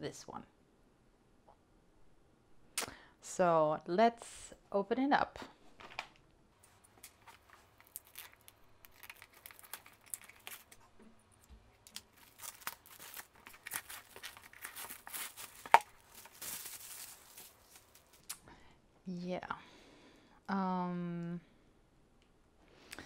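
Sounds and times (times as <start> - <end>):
plastic shrink wrap crinkling: 6.6 - 18.4
plastic wrap tearing: 7.0 - 10.8, 11.8 - 18.4.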